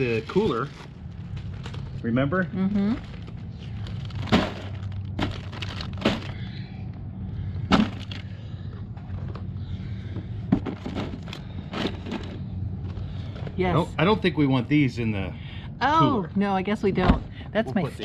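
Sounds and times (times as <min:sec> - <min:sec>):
packages crinkling and knocking: 0:00.0 - 0:02.3, 0:02.9 - 0:06.6, 0:07.6 - 0:13.6
steady low hum: 0:00.0 - 0:18.0.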